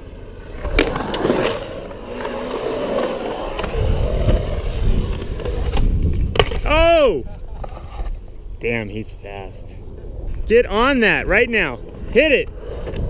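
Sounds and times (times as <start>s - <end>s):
skateboard wheels rolling on concrete: 0.0s - 13.0s
skateboard clack: 0.6s - 8.2s.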